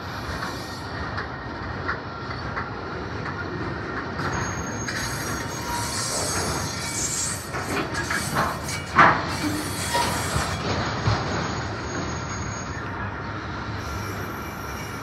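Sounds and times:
train wheels clattering over rail joints: 0.0s - 12.9s
thin high wheel squeal: 4.2s - 13.0s, 13.8s - 15.0s.

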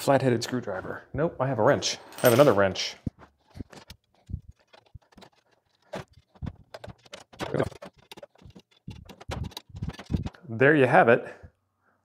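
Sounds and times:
metal rods clicking and knocking: 3.2s - 10.5s.

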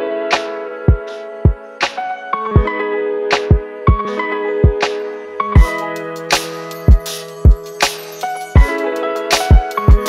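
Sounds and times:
held chords: 0.0s - 10.0s
music with drum beat: 0.9s - 2.0s, 5.6s - 10.0s.

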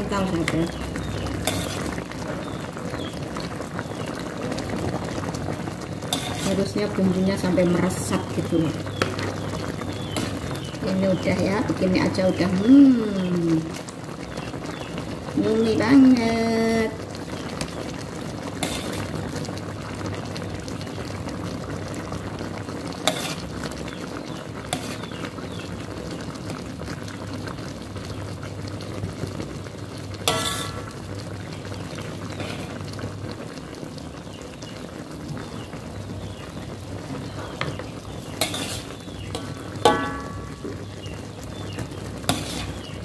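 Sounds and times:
sauce bubbling hiss: 0.0s - 43.0s
spoon scraping a wok: 0.4s - 2.1s, 6.1s - 6.8s, 18.6s - 19.2s, 23.0s - 23.5s, 24.7s - 25.2s, 30.2s - 30.9s, 32.3s - 32.8s, 37.5s - 40.7s, 42.2s - 43.0s
spoon clinking against pan: 39.9s - 40.6s.

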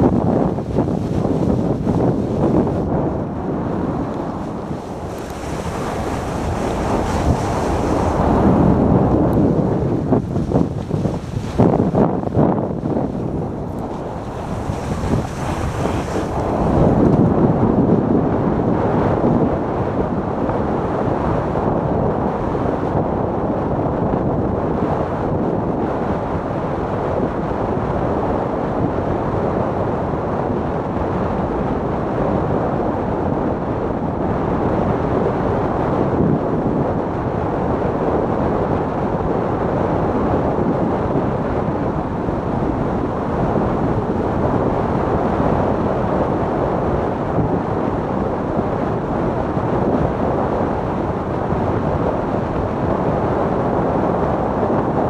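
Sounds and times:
wind on microphone: 0.0s - 55.0s
sled runners sliding on snow: 4.4s - 8.6s, 13.7s - 16.8s.

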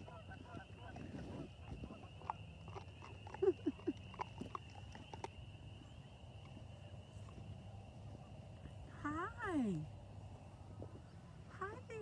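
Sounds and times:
frogs calling: 0.0s - 9.6s.

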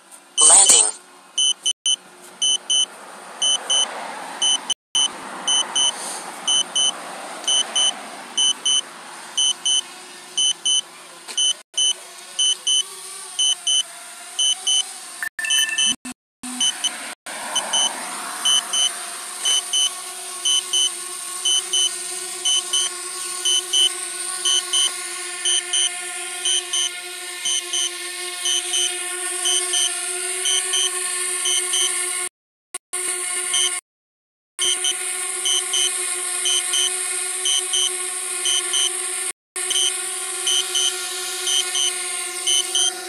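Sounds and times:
electronic double beeps: 0.4s - 1.7s, 15.4s - 17.0s.

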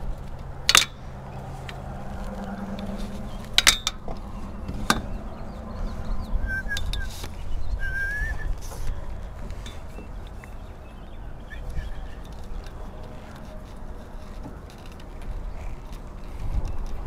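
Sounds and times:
wind on microphone: 0.0s - 14.4s, 15.1s - 17.0s
metal frame clanks: 0.6s - 1.8s, 2.4s - 7.0s
bird chirping: 2.4s - 13.4s.

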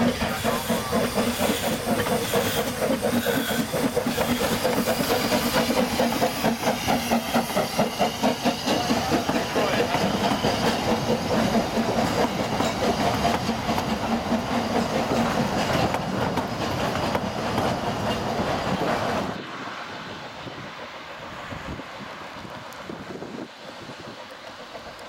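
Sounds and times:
wheels clicking over rail joints: 0.0s - 19.2s
train carriages rolling past: 0.0s - 25.0s.

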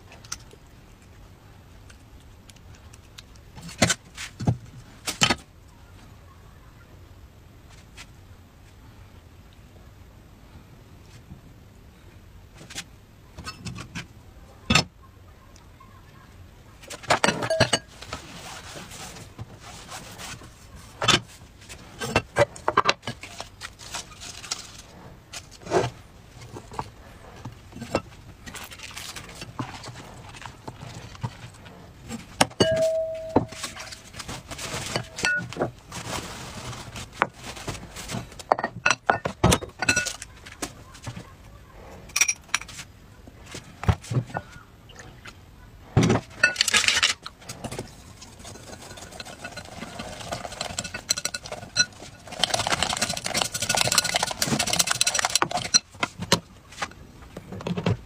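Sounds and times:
kitchenware tapping and clattering: 17.0s - 17.9s, 32.4s - 33.9s.

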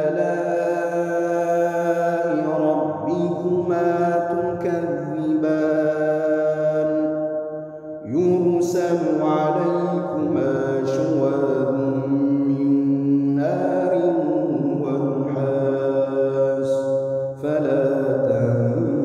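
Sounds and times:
man chanting melodically: 0.0s - 7.3s, 8.0s - 19.0s
breath: 17.0s - 17.4s.

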